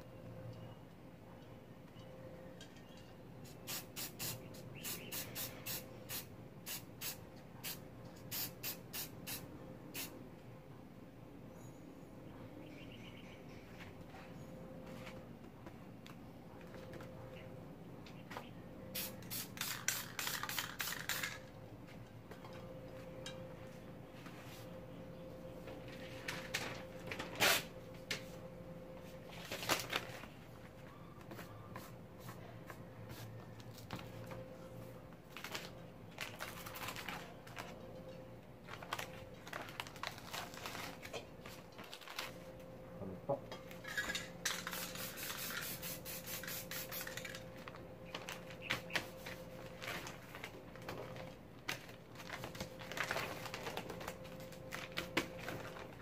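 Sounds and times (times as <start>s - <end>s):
spray paint can hissing: 3.5s - 10.1s, 19.0s - 21.4s, 44.6s - 47.4s
paper and cans clicking: 35.3s - 37.8s, 38.7s - 42.4s, 48.1s - 56.0s.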